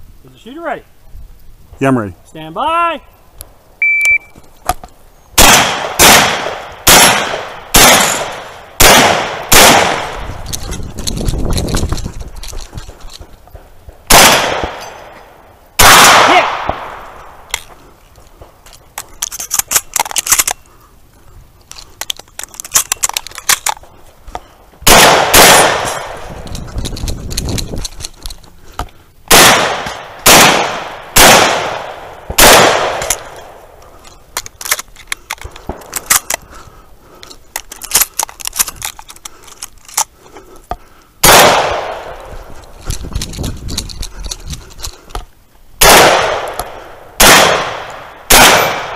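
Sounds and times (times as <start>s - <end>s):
shotgun shots: 5.4s - 10.3s, 14.1s - 15.1s, 15.8s - 17.1s, 24.8s - 26.2s, 29.3s - 33.6s, 41.2s - 42.2s, 45.8s - 48.9s
clicks and rattles: 10.3s - 13.3s, 18.6s - 20.6s, 21.6s - 23.9s, 25.8s - 28.6s, 37.2s - 40.1s, 42.6s - 45.3s.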